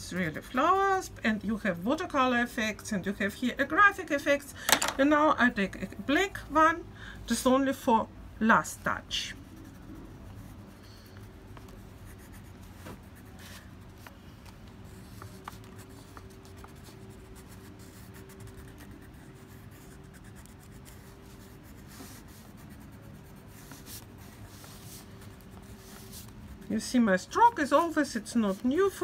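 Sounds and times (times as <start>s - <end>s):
low background hum: 0.0s - 29.0s
pen scratching on paper: 9.1s - 29.0s.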